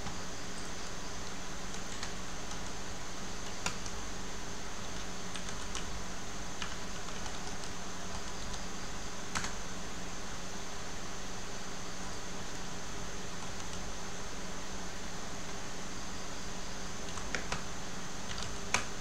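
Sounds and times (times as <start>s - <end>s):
keyboard keys clicking: 5.3s - 5.9s, 6.6s - 8.6s, 17.1s - 17.6s, 18.3s - 18.9s.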